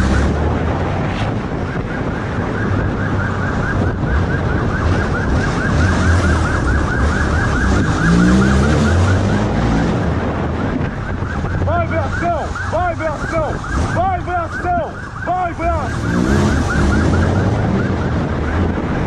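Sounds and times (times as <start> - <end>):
police siren yelping: 0.0 - 0.6, 1.4 - 19.0
wind noise: 0.0 - 19.0.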